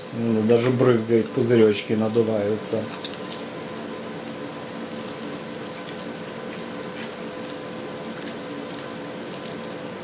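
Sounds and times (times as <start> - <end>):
steady hum and hiss: 0.0 - 10.0
wet squelches of cheese: 4.8 - 10.0.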